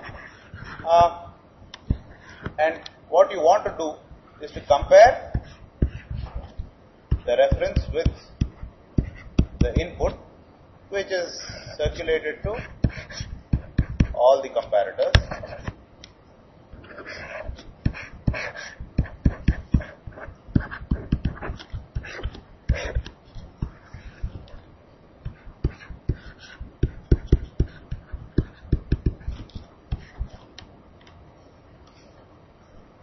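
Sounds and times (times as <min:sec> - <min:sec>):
stylus scratching strokes: 0:00.0 - 0:01.1, 0:04.4 - 0:10.0, 0:11.6 - 0:14.3, 0:15.2 - 0:15.8, 0:16.7 - 0:30.6
stylus tapping on a tablet: 0:07.1 - 0:09.9, 0:12.8 - 0:14.2, 0:17.6 - 0:24.6, 0:25.3 - 0:30.6.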